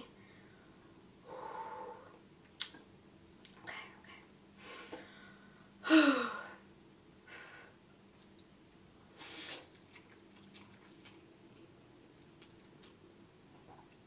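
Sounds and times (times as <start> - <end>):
woman breathing in: 0.2 - 2.2
woman sighing: 5.8 - 6.6.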